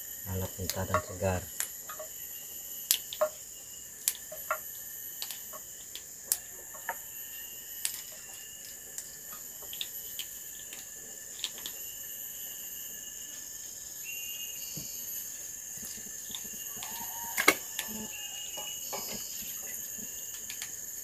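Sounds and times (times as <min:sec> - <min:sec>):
insects chirring: 0:00.0 - 0:21.0
beans snapping by hand: 0:04.0 - 0:06.5.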